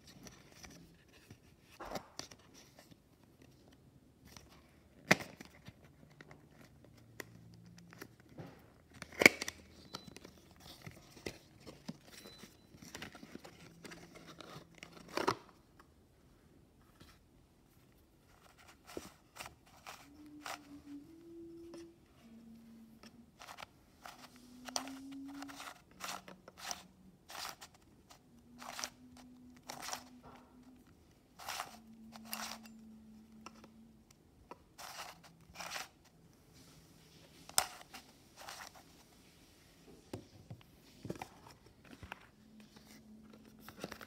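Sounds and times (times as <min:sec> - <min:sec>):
puzzle cube clicking and clacking: 0:23.4 - 0:27.8, 0:28.5 - 0:30.2.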